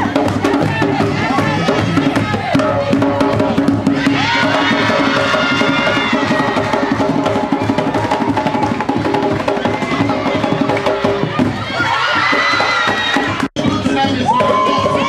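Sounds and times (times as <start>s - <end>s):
hand drums in fast rhythm: 0.0s - 15.0s.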